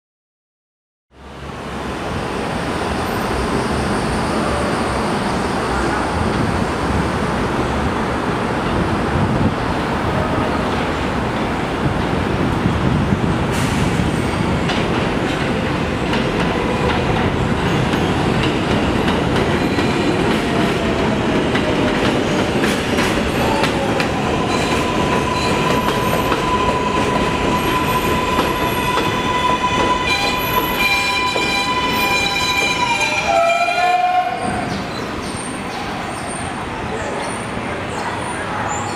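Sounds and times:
high train whine: 0:01.2 - 0:38.9
train wheels clattering on rails: 0:13.5 - 0:33.1.

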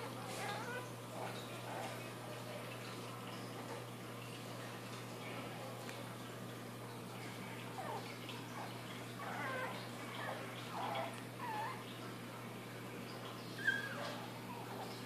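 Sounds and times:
puppy howling: 0:07.8 - 0:11.8, 0:13.6 - 0:15.0.

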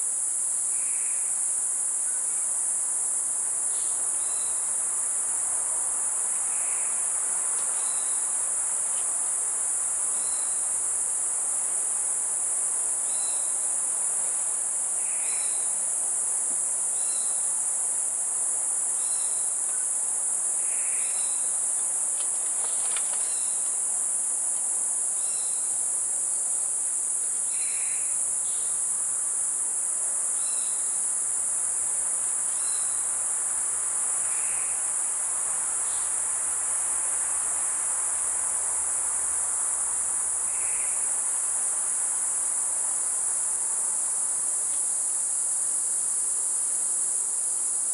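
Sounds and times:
insect chorus drone: 0:00.0 - 0:47.9
soft insect calls: 0:00.0 - 0:47.9
short insect chirps: 0:03.7 - 0:04.8, 0:06.3 - 0:09.4, 0:10.0 - 0:11.2, 0:12.8 - 0:16.0, 0:16.8 - 0:17.8, 0:18.9 - 0:26.0, 0:26.6 - 0:29.4, 0:30.2 - 0:31.2, 0:32.2 - 0:33.3, 0:34.0 - 0:35.0, 0:40.4 - 0:42.6.

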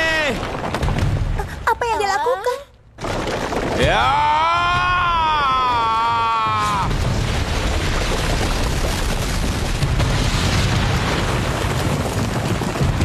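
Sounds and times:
heavy rumble with rushing crackling: 0:06.5 - 0:13.0.

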